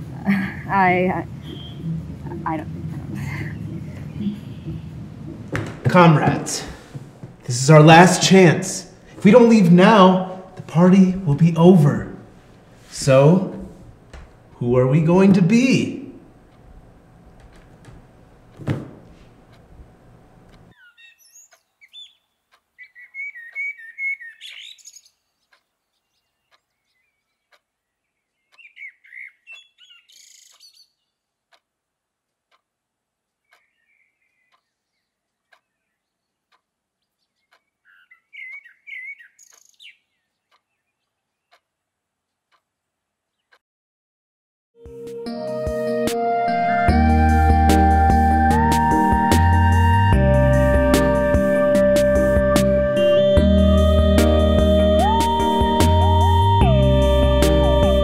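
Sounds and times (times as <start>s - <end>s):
songbirds chirping and trilling: 1.2s - 7.0s, 19.3s - 31.7s, 33.2s - 43.6s
single thump: 5.3s - 7.4s, 18.6s - 19.3s
faint ticks: 27.5s - 27.7s, 31.5s - 31.7s, 32.3s - 33.7s, 34.4s - 34.7s, 35.3s - 35.7s, 36.4s - 36.7s, 40.4s - 40.7s, 41.5s - 41.7s, 42.3s - 42.7s.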